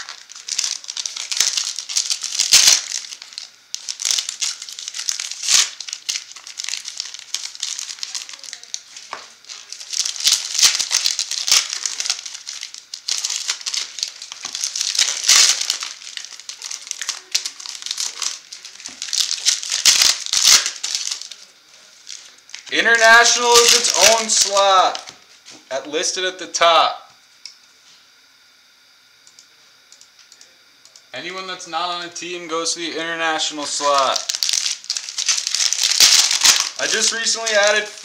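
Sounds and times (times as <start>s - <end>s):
plastic wrappers crinkling: 0.0s - 25.2s, 33.4s - 38.0s.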